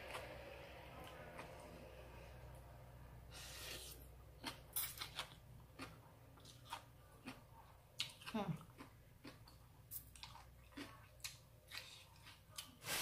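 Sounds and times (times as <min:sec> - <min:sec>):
chewing with wet lip-smacks: 0:04.4 - 0:12.8.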